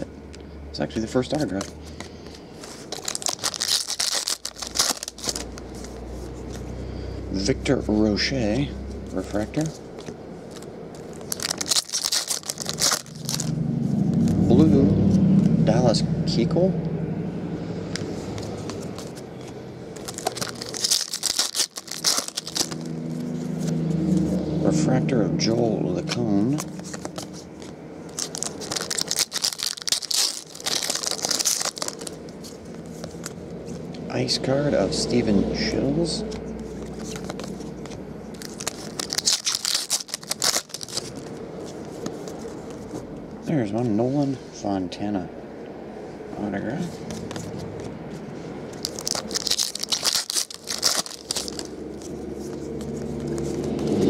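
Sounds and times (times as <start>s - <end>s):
foil wrapper tearing and crinkling: 2.8s - 6.0s, 10.5s - 14.4s, 20.0s - 23.4s, 28.1s - 33.4s, 36.8s - 42.4s, 48.7s - 54.0s.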